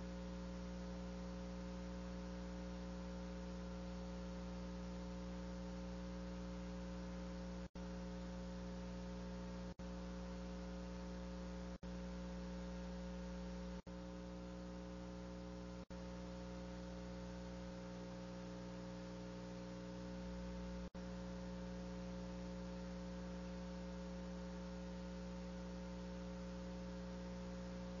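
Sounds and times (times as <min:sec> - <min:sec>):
electrical hum: 0:00.0 - 0:28.0.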